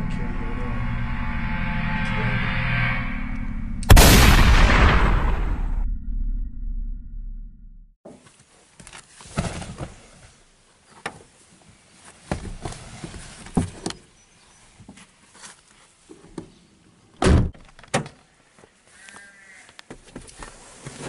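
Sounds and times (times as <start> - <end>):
loud thud: 3.9 - 6.0.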